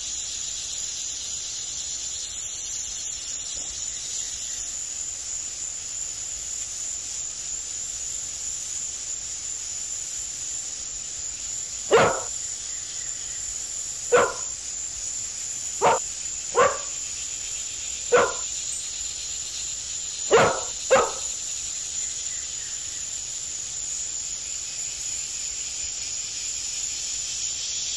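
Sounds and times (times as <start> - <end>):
dog barking: 11.9 - 12.4, 14.1 - 14.6, 15.8 - 16.0, 16.6 - 17.0, 18.1 - 18.5, 20.3 - 21.4.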